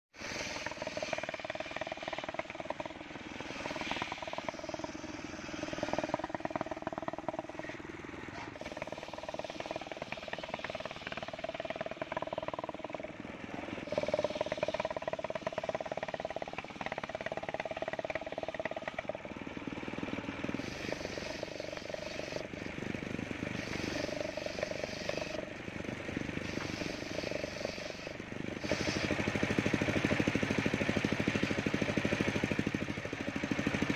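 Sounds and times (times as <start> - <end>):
circular saw blade cutting wood: 0.2 - 13.0, 23.5 - 25.5, 26.4 - 30.2.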